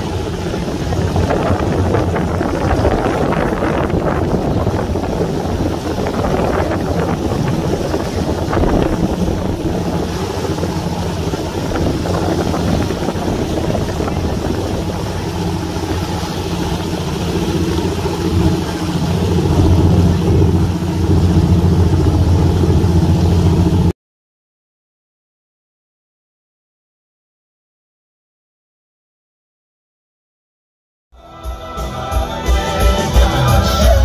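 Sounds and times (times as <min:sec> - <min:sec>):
motorboat engine humming: 0:00.0 - 0:23.9, 0:31.2 - 0:34.0
water rushing: 0:00.0 - 0:23.9
wind: 0:00.0 - 0:23.9.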